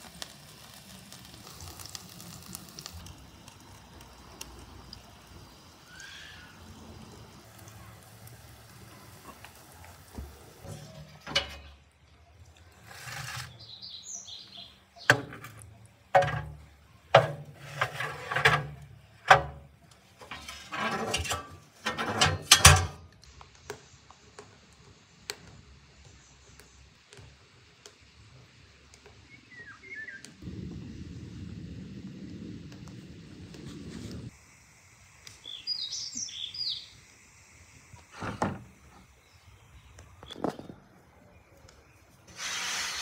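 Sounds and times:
metal baking tray clattering: 10.7 - 11.8, 16.2 - 16.6, 17.2 - 19.6, 20.2 - 23.0
bird chirping: 13.5 - 15.8, 29.3 - 30.3, 35.4 - 37.0.

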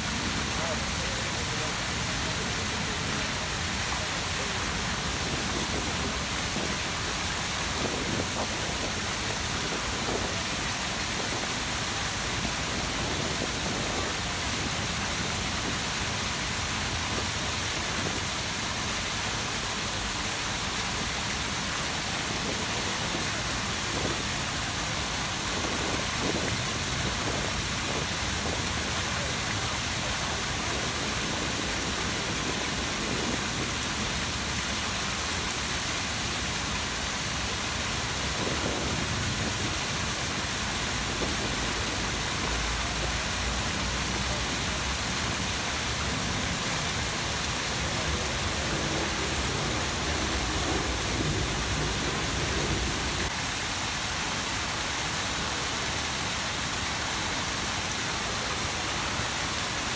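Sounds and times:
fountain water splashing: 0.0 - 59.9.

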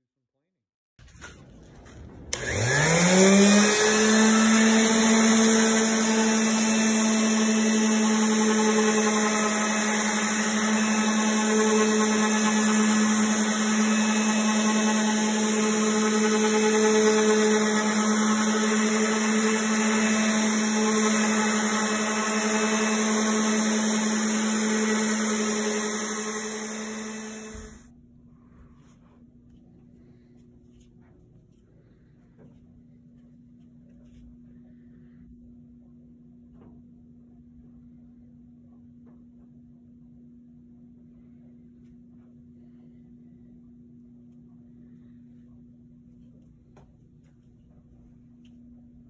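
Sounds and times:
orbital sander sanding wood: 2.3 - 27.9.

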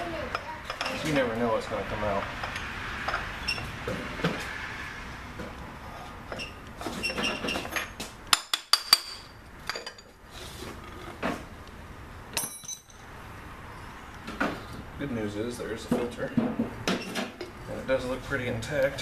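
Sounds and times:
hand tool clanking on metal: 12.4 - 13.0.

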